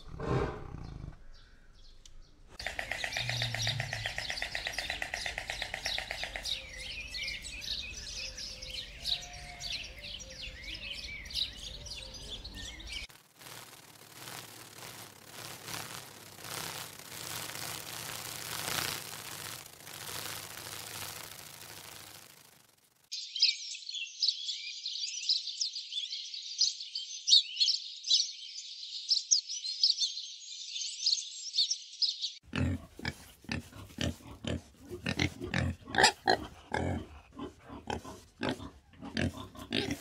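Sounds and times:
small birds chirping: 0.8s - 40.0s
steady hiss: 13.0s - 23.1s
warthog grunting: 32.5s - 40.0s.

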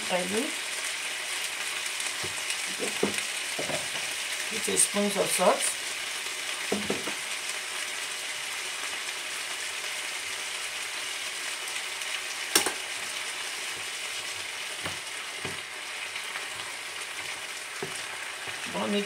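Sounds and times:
vegetables sizzling in a frying pan: 0.0s - 19.0s
wooden spoon stirring: 13.7s - 18.7s.

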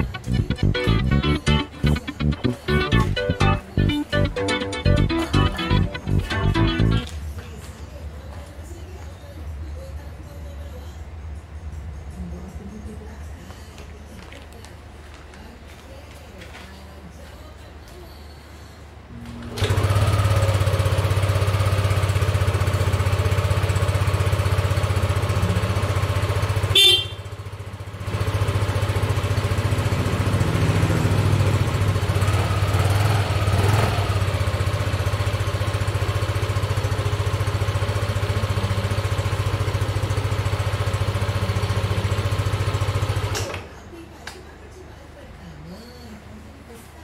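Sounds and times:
scooter engine idling: 0.0s - 7.0s, 19.5s - 43.5s.

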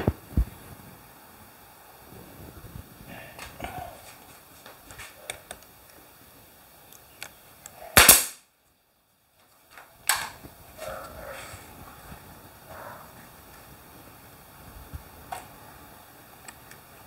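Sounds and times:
nail gun firing: 8.0s - 8.4s.

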